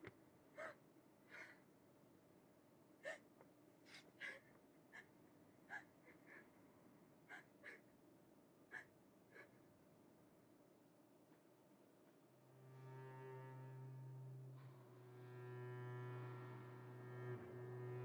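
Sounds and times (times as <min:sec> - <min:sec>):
woman gasping breaths: 0:00.6 - 0:01.6.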